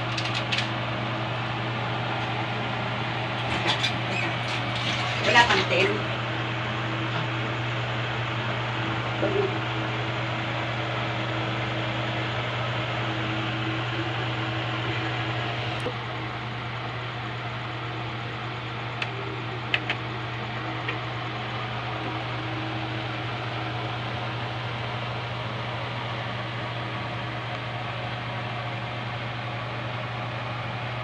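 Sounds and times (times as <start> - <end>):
steady hum and hiss: 0.0 - 31.0.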